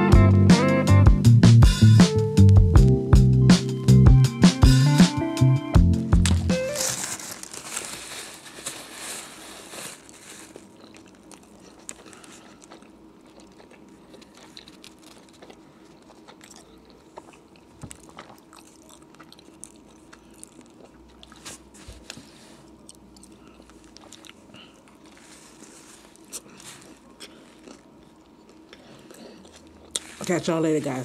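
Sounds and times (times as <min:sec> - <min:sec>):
person chewing food: 0:05.9 - 0:31.0.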